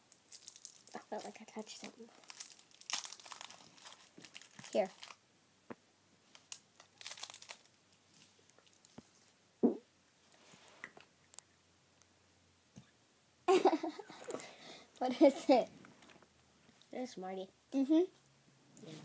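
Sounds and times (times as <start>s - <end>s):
candy wrapper crinkling: 0.1s - 5.2s, 6.3s - 9.4s.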